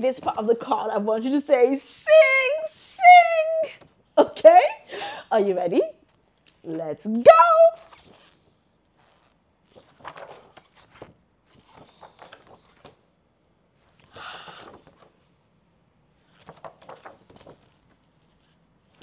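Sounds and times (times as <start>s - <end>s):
paper cards being flipped: 7.8s - 13.0s, 16.2s - 19.0s.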